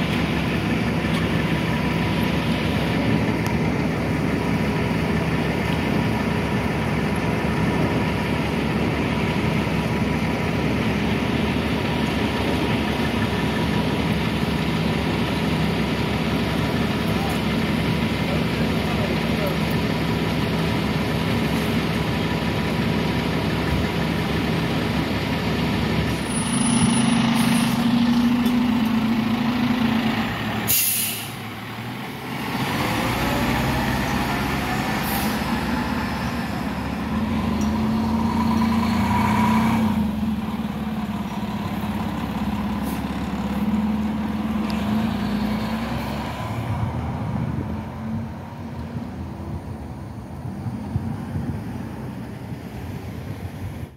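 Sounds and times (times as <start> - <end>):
diesel engines running: 0.0 - 53.9
air brakes hissing: 26.1 - 28.0, 30.6 - 31.4.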